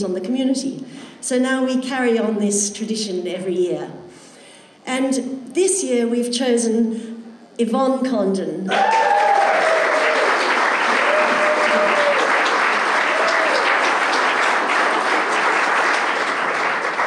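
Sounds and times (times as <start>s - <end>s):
crowd applauding: 8.7s - 17.0s.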